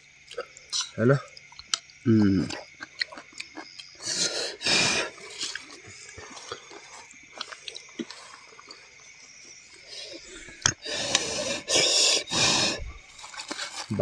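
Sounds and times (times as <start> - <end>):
rustling of food: 12.9 - 14.0.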